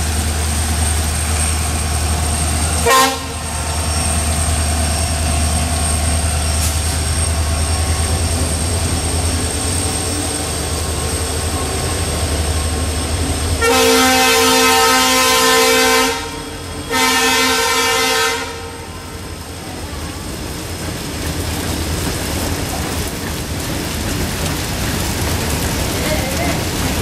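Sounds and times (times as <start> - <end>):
locomotive engine rumble: 0.0 - 27.0
train horn: 2.8 - 3.6, 13.6 - 19.2.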